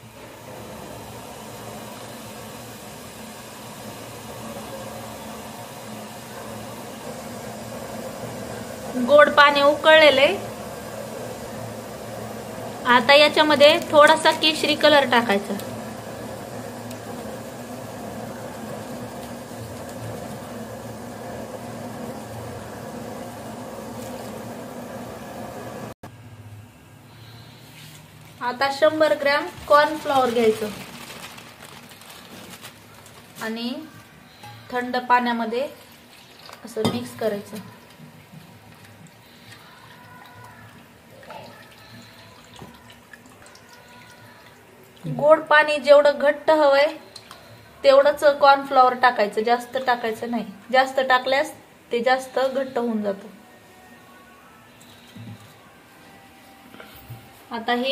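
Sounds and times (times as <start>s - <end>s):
water boiling in a pot: 0.0s - 26.0s, 27.2s - 53.4s.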